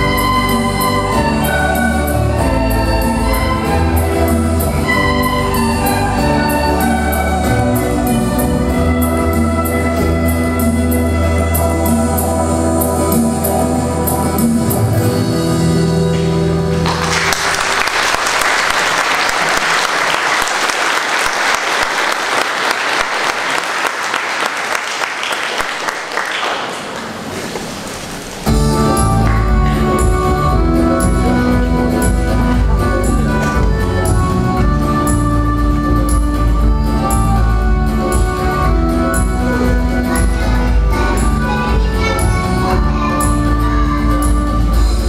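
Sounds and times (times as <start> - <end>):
music: 0.0 - 18.7, 28.4 - 45.0
recorder ensemble music: 0.0 - 20.4, 28.4 - 45.0
audience applause: 16.7 - 28.4.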